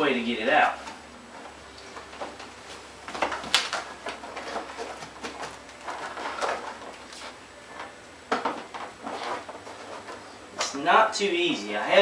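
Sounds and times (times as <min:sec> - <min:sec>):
plastic panel scraping and creaking: 0:03.1 - 0:10.4
plastic clatter: 0:03.1 - 0:10.7.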